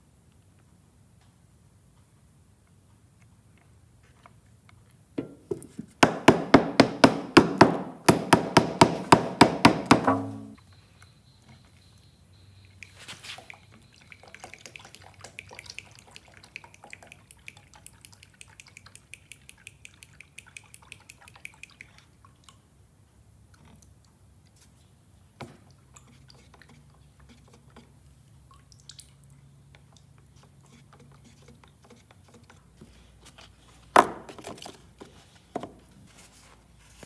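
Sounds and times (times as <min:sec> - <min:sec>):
liquid dripping: 0:12.8 - 0:22.7, 0:25.5 - 0:31.8.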